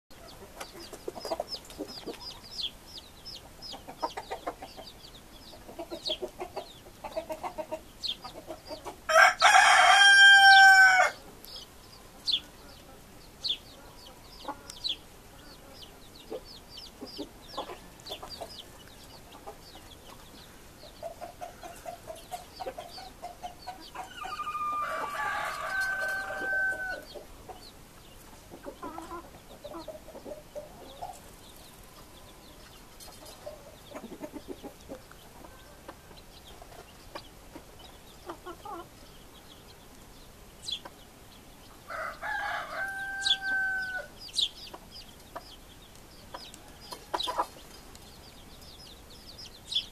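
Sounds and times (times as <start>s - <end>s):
chickens clucking: 0.1s - 49.9s
rooster crowing: 9.1s - 11.2s, 24.0s - 27.1s, 41.9s - 44.1s.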